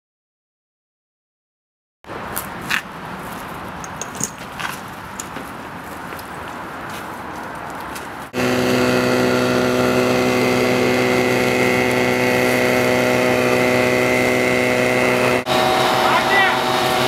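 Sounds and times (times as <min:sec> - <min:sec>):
outdoor noise with light clicks: 0:02.3 - 0:08.4
engine running steadily: 0:08.3 - 0:17.0.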